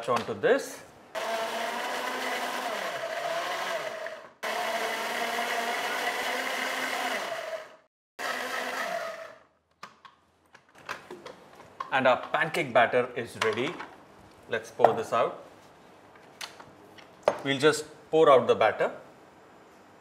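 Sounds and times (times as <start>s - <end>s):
blender motor whining: 1.2s - 9.5s.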